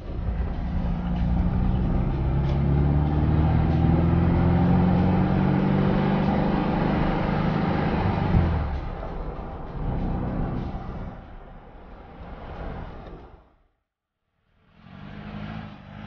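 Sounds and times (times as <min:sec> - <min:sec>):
car engine running: 0:00.0 - 0:11.2.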